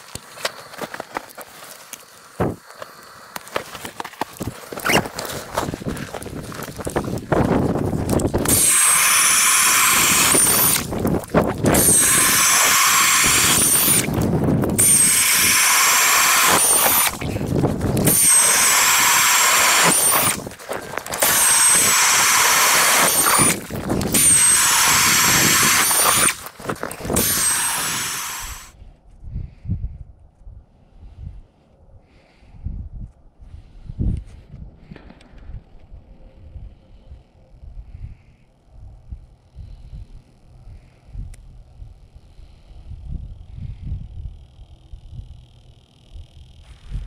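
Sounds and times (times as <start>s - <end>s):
cordless drill turning ice auger: 3.4s - 28.8s.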